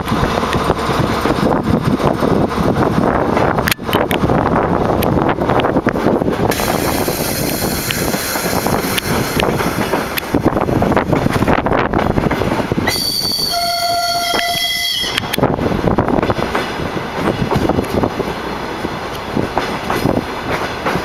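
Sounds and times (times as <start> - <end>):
train rumble and rush: 0.0 - 21.0
wheels clicking over rail joints: 0.0 - 21.0
train horn: 12.9 - 15.4.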